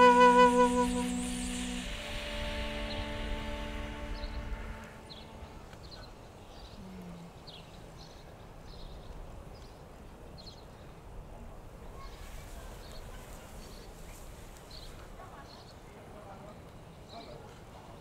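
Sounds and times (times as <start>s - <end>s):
faint outdoor background noise: 0.0s - 18.0s.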